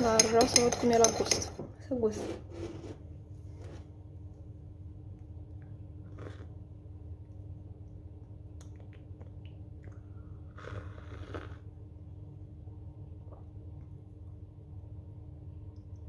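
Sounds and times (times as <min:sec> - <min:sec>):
steady low hum: 0:00.0 - 0:16.0
slurping coffee: 0:06.0 - 0:06.6, 0:10.5 - 0:11.7.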